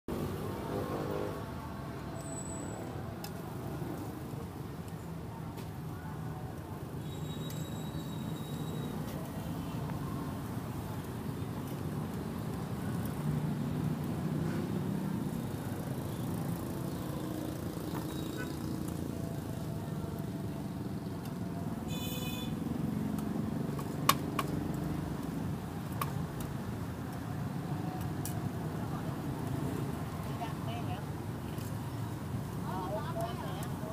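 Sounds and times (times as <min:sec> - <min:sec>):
traffic hum: 0:00.1 - 0:33.9
cleaver chopping meat on wood: 0:23.7 - 0:24.7.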